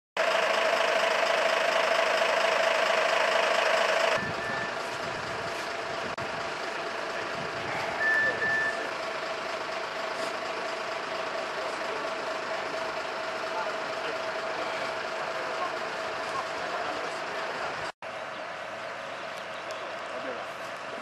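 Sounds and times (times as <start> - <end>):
fire engine droning: 0.2 - 21.0
short high beep: 4.2 - 4.8, 7.8 - 8.9.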